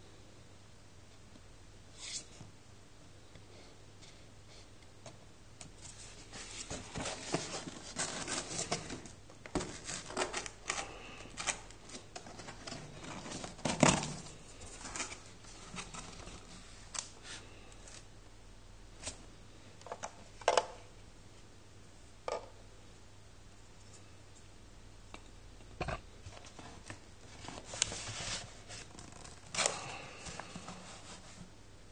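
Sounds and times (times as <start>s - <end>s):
cardboard box scraping and rustling: 5.9s - 10.5s, 12.2s - 16.6s.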